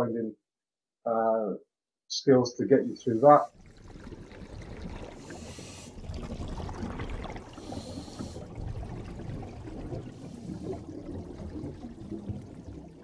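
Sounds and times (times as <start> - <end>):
bubbling water-like sound: 3.2 - 13.0.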